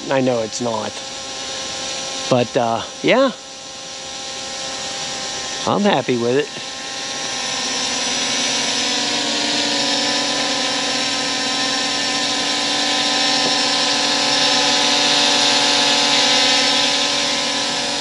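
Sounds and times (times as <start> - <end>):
drone propellers whining: 0.0 - 18.0.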